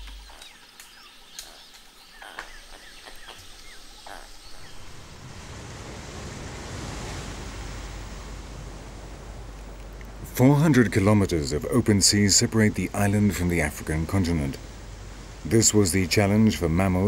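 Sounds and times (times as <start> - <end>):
surf rushing: 4.7 - 17.0.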